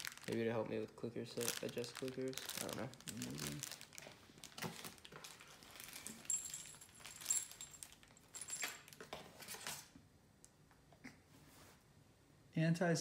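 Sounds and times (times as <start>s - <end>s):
metal parts clinking in plastic bags: 0.0s - 0.6s, 1.3s - 9.9s.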